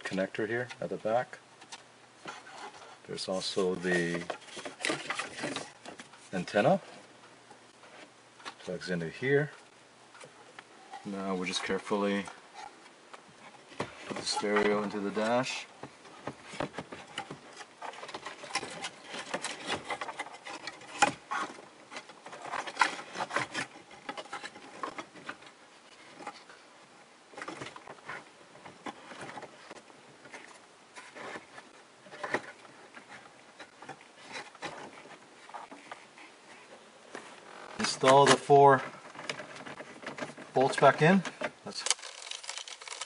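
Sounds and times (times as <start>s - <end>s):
plastic scraping and clicking: 1.6s - 6.8s, 13.5s - 26.5s, 37.1s - 43.0s.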